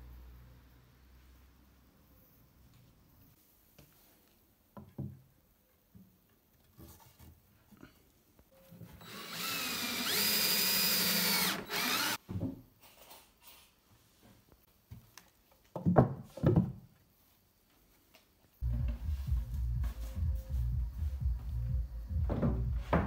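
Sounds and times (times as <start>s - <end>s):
cordless drill driving screw: 9.0s - 12.2s.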